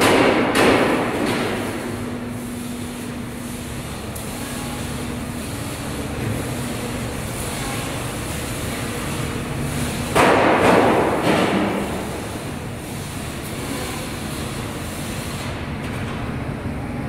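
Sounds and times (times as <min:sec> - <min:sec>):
workshop machinery rumble: 0:00.0 - 0:17.0.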